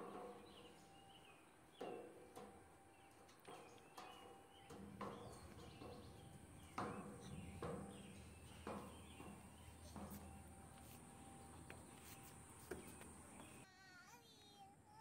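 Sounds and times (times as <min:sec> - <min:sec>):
birds chirping faintly: 0:00.0 - 0:14.7
thumps on metal slide: 0:03.5 - 0:13.6.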